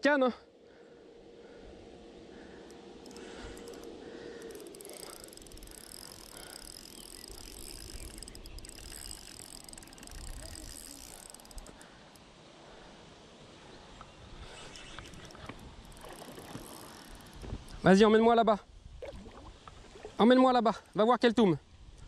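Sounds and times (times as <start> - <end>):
fishing reel drag clicking: 2.6 - 12.3, 14.4 - 17.8.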